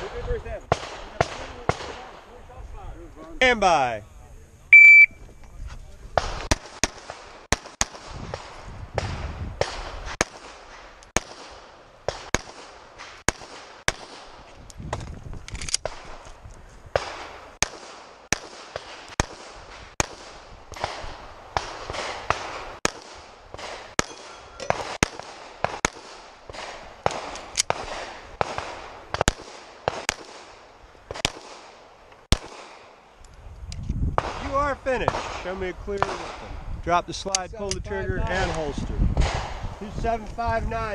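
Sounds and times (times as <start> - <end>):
pistol shots: 0.0 - 2.2, 6.2 - 14.4, 16.9 - 33.0, 34.2 - 36.5.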